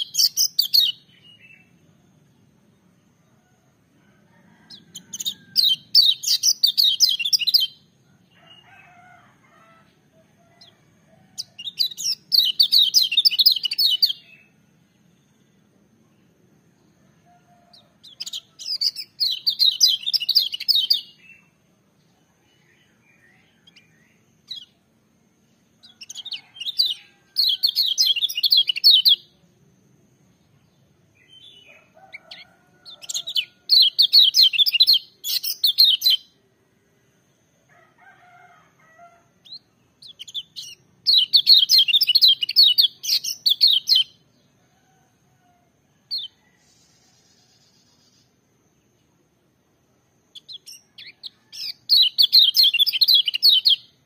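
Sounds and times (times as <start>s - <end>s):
bird high twittering song: 0.0s - 3.5s, 4.5s - 9.2s, 9.8s - 16.4s, 17.2s - 24.9s, 25.8s - 29.4s, 30.4s - 36.4s, 39.4s - 45.0s, 50.3s - 54.0s.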